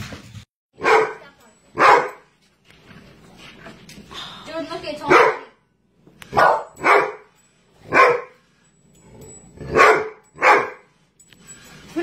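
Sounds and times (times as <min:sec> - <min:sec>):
dog barking: 0:00.8 - 0:02.3, 0:05.0 - 0:05.6, 0:06.3 - 0:07.3, 0:07.9 - 0:08.4, 0:09.7 - 0:10.9.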